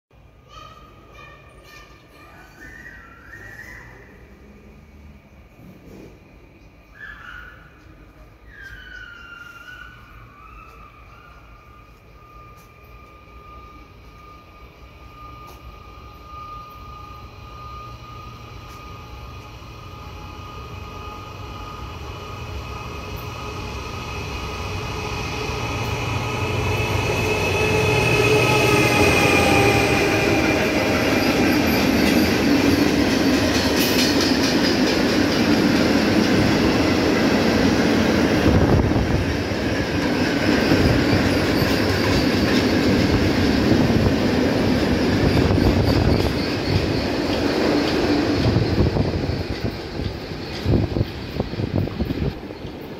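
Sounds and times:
wheel squeal: 2.5 - 4.2, 6.9 - 14.6, 39.8 - 43.2, 44.6 - 52.9
locomotive passing: 2.6 - 52.9
wagon wheels rumbling on rails: 29.2 - 52.9.

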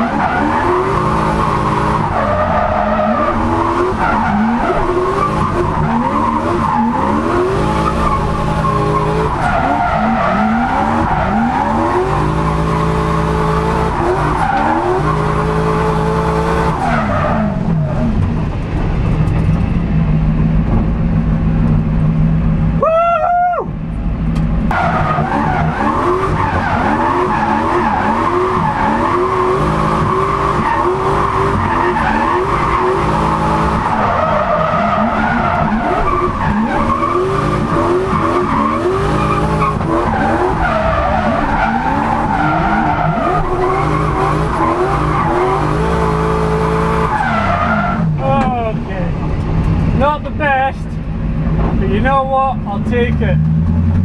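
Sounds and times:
car engine revving high: 0.0 - 18.2, 24.6 - 48.6
tyres squealing: 24.8 - 46.4.

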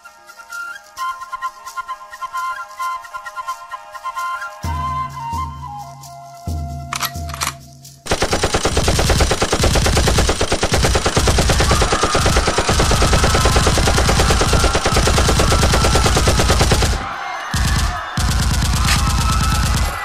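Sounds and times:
rapid machine-gun fire: 8.1 - 20.0.

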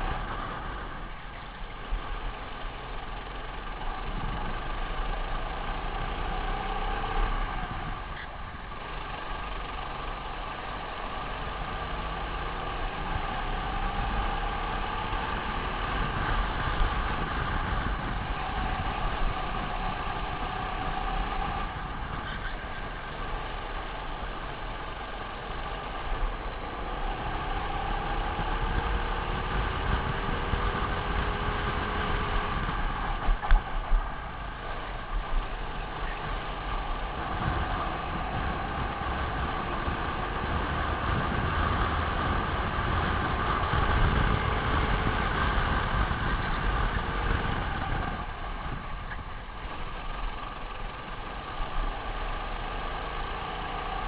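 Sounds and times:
kart engine racing: 0.0 - 54.0.

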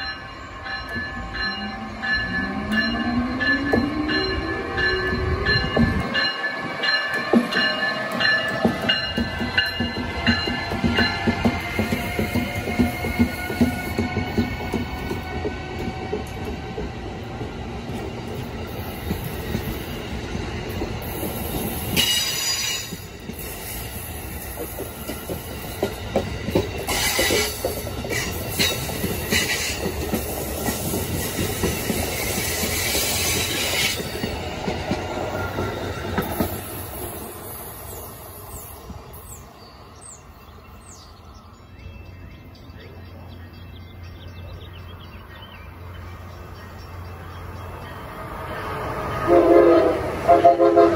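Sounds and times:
train wheels clattering over rails: 2.2 - 37.4.

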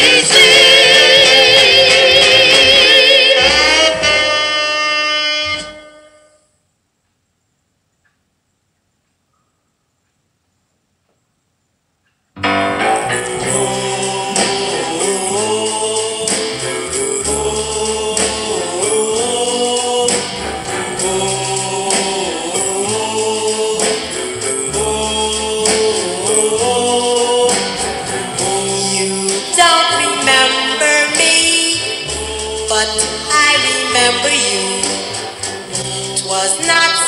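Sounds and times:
song with voices singing: 0.0 - 4.6, 12.4 - 37.0.

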